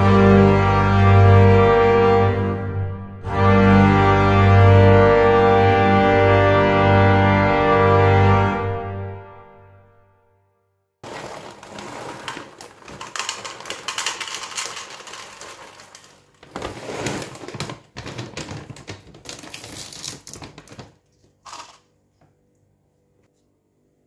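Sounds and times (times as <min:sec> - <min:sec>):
plastic bag crinkling: 0:11.0 - 0:21.8
kibble rattling into plastic cup: 0:11.0 - 0:21.9.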